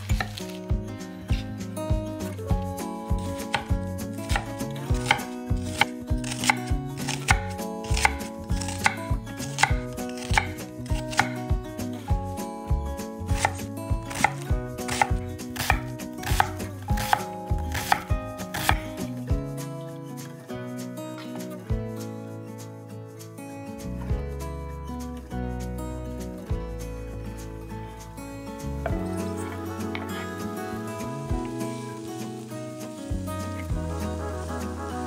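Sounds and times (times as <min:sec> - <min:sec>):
knife chopping on cutting board: 0:00.0 - 0:00.6, 0:03.4 - 0:06.6, 0:07.2 - 0:11.4, 0:13.4 - 0:19.0.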